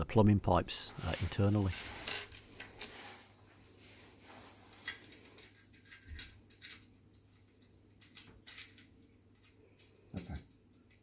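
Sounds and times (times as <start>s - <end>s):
metal tubes clicking and knocking: 4.8s - 11.0s.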